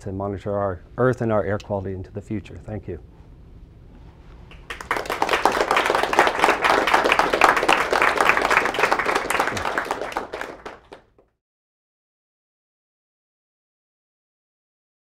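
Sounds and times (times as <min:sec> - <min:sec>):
audience applauding: 0:04.5 - 0:11.2.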